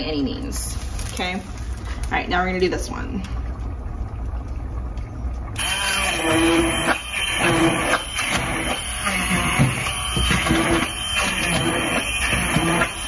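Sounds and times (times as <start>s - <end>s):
low steady hum: 0.0s - 13.0s
immersion blender motor running: 5.6s - 13.0s.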